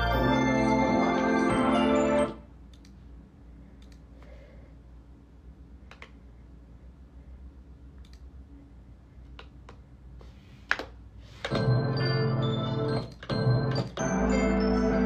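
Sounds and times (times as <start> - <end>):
low steady hum: 0.0 - 15.0
keyboard and mouse clicks: 3.8 - 4.1, 5.9 - 6.2, 8.0 - 8.3, 9.3 - 9.8.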